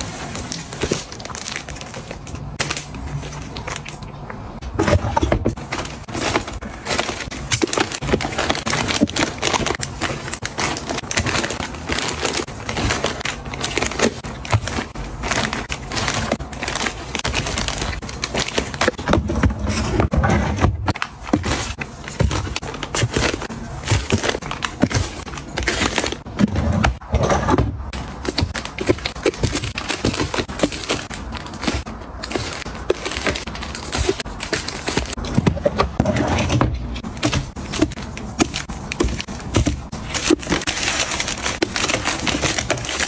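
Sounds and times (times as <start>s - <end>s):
plastic packaging crinkling: 0.0s - 27.2s, 27.8s - 43.0s.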